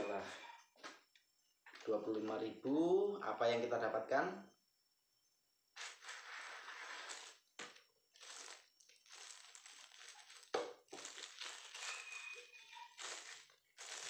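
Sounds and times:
plastic wrap crinkling: 0:05.8 - 0:14.0.

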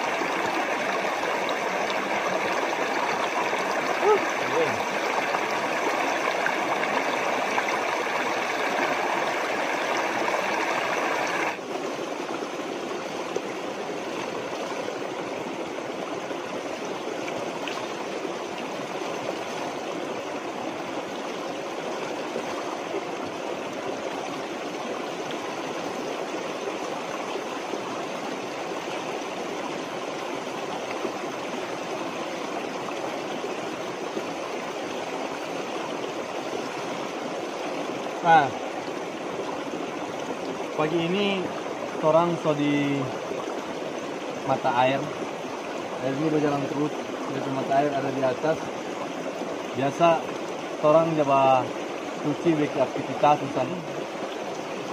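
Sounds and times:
spring water rushing and splashing: 0:00.0 - 0:54.9.

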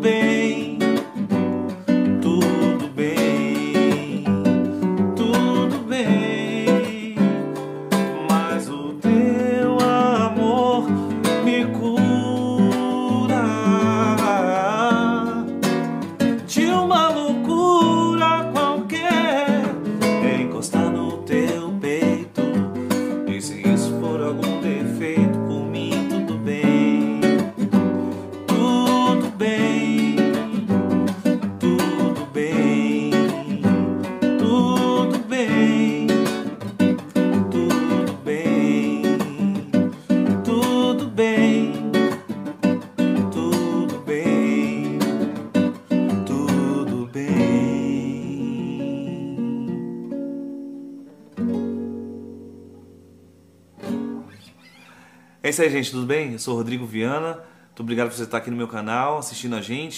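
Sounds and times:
man singing: 0:00.0 - 0:50.0, 0:55.4 - 0:59.9
classical guitar strummed and picked: 0:00.0 - 0:59.9.

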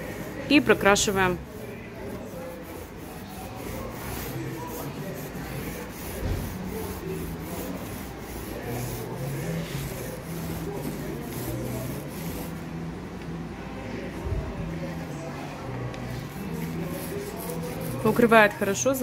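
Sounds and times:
paint roller swishing on board: 0:00.1 - 0:12.6, 0:16.1 - 0:18.6.

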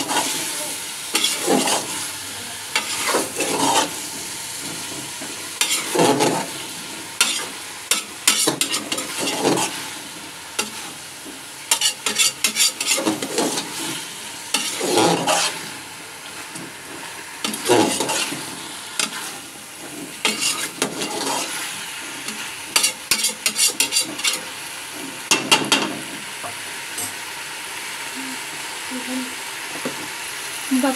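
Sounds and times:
vegetables sizzling in a pot: 0:00.0 - 0:30.9
spoon scraping a metal pot: 0:02.8 - 0:04.0, 0:05.6 - 0:06.5, 0:07.2 - 0:09.7, 0:11.7 - 0:13.7, 0:14.5 - 0:15.6, 0:17.5 - 0:18.4, 0:20.2 - 0:21.6, 0:22.3 - 0:24.5.

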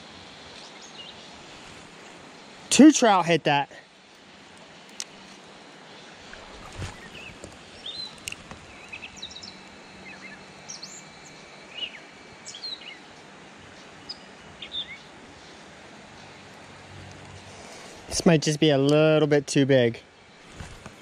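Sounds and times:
steady outdoor hiss: 0:00.0 - 0:21.0
small birds chirping: 0:00.5 - 0:01.4, 0:04.9 - 0:16.4.

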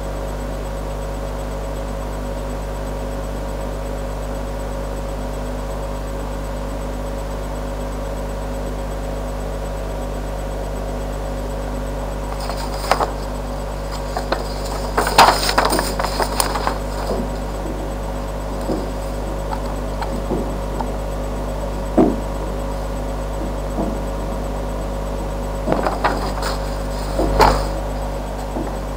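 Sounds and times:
electrical hum and hiss: 0:04.7 - 0:28.9
knocks clicks and rustles: 0:12.2 - 0:21.0, 0:25.6 - 0:28.9.

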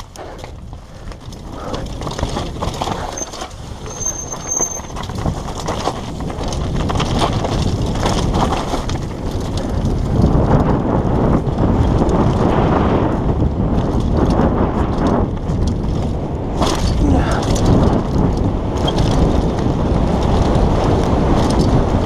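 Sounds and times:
tyres crunching over stones: 0:00.0 - 0:10.3, 0:15.4 - 0:20.6
bike rattling and knocking: 0:00.0 - 0:22.0.

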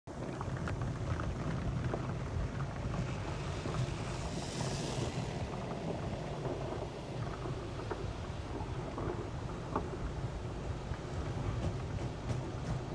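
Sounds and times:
car wash rumble: 0:00.1 - 0:12.9
water washing over car: 0:00.1 - 0:12.9
loud hiss: 0:03.3 - 0:05.9.

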